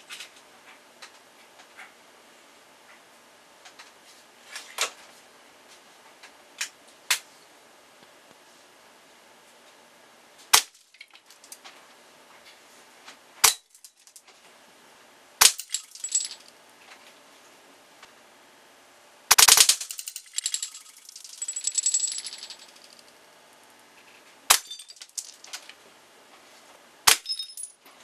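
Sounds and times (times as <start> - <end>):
breaking pieces clattering: 15.4 - 16.5, 19.3 - 23.0, 24.5 - 25.7, 27.1 - 27.8.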